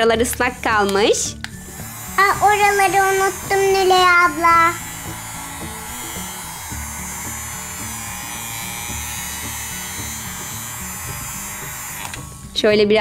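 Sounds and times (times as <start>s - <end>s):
toy hair dryer whirring: 0.5s - 13.0s.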